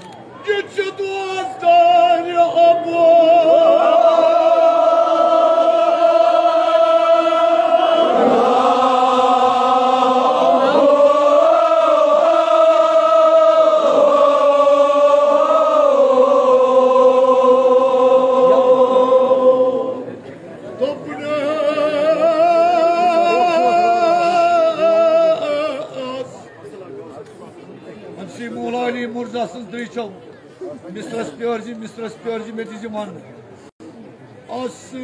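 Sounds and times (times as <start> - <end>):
men chanting a mourning lament: 0.5 - 26.5.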